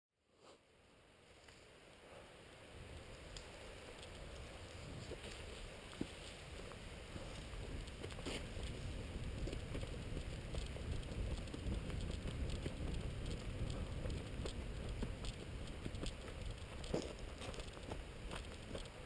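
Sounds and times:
fast footsteps on gravel: 0:04.8 - 0:19.0
microphone handling rumble: 0:06.6 - 0:19.0.

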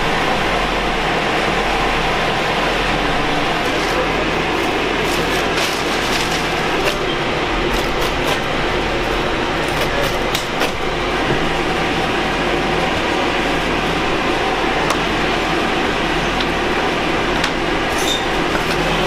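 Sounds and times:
mechanical drone with low hum: 0:00.0 - 0:19.0
plastic trash bag rustling: 0:03.6 - 0:10.6.

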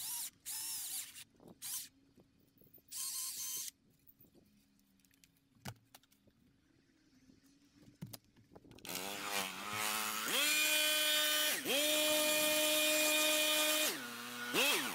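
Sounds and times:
battery chainsaw whining: 0:08.9 - 0:14.9.

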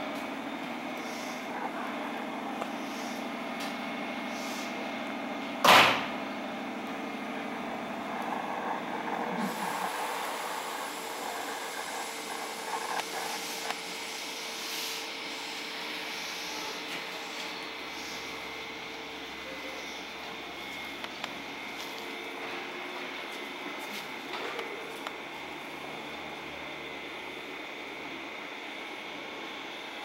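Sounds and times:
compressed air hiss: 0:02.7 - 0:03.3, 0:04.3 - 0:04.8, 0:08.3 - 0:18.5
train equipment hum: 0:06.4 - 0:27.5.

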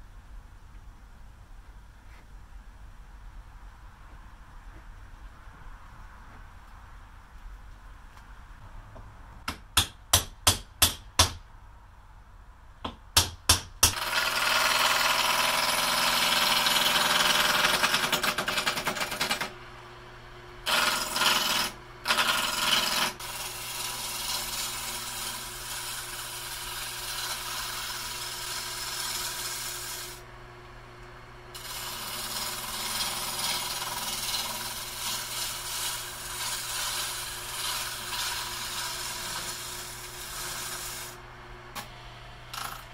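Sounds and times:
hammer striking metal rod: 0:09.5 - 0:11.4
wood lathe cutting: 0:14.0 - 0:19.5, 0:20.6 - 0:30.2, 0:31.5 - 0:41.2.

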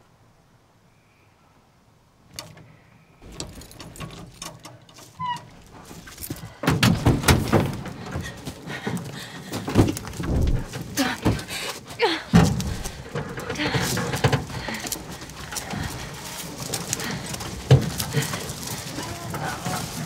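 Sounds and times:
falling squeak: 0:05.2 - 0:05.6
truck door clicks and thuds: 0:06.6 - 0:08.4, 0:09.7 - 0:11.4.

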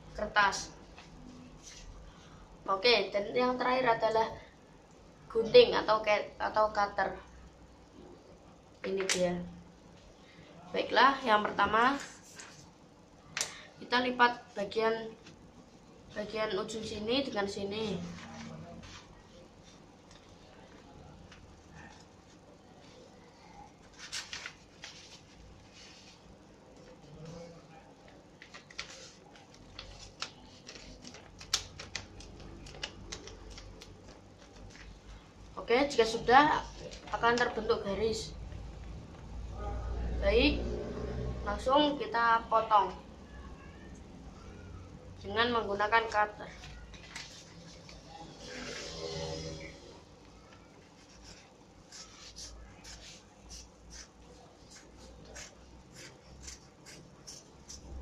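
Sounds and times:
paper being folded and creased: 0:23.8 - 0:26.2, 0:28.4 - 0:35.2, 0:46.6 - 0:49.0, 0:50.3 - 0:58.0.

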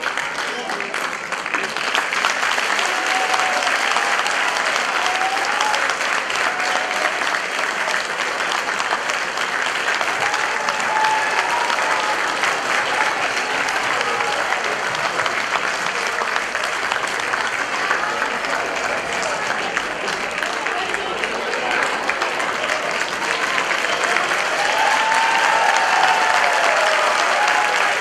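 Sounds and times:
audience applauding: 0:00.0 - 0:28.0.

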